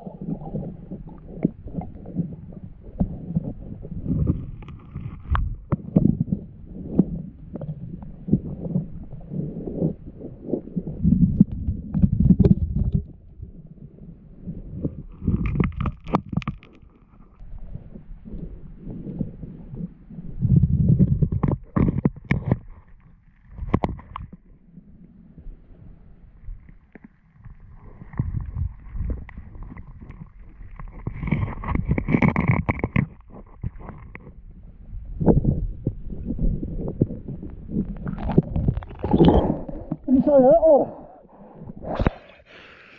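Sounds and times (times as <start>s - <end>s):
muffled underwater river rumble: 0.0s - 42.9s
clicks and knocks among rocks: 15.2s - 17.4s, 21.1s - 24.4s, 27.0s - 34.4s.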